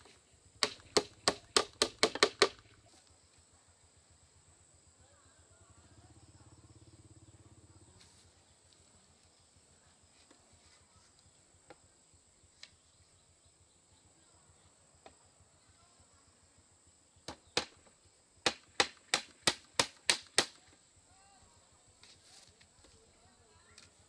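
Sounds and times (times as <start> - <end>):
hammer hitting a nail: 0.6 - 2.6, 18.4 - 20.6.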